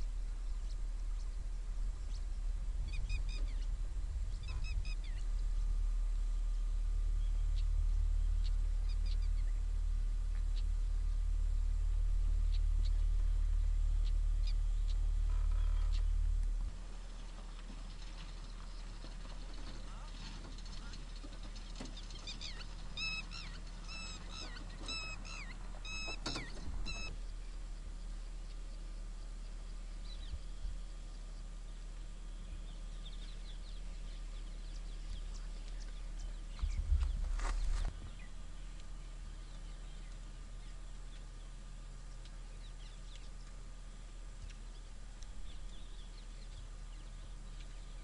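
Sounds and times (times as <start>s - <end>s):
low rumble of open country: 0.0s - 48.0s
small birds chirping: 0.0s - 48.0s
high-pitched animal calls: 22.2s - 27.1s.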